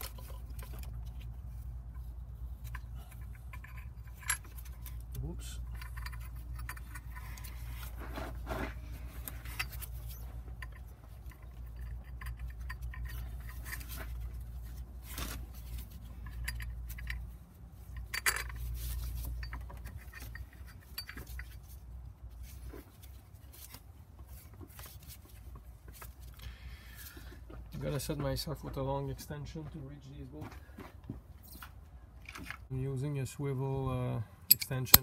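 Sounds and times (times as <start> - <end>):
metallic clinks and knocks: 0.0 - 7.7, 9.3 - 14.4, 16.0 - 21.8, 34.5 - 35.0.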